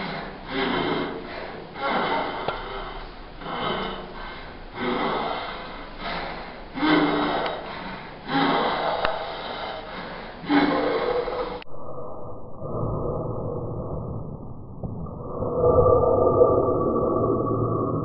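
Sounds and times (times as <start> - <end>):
person gasping for breath: 0.0 - 11.6.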